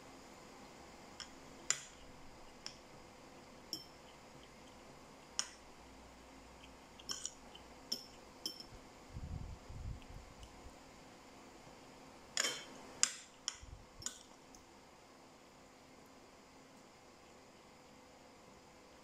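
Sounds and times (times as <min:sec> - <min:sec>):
cutlery clinking on ceramic bowls: 0:07.0 - 0:08.7.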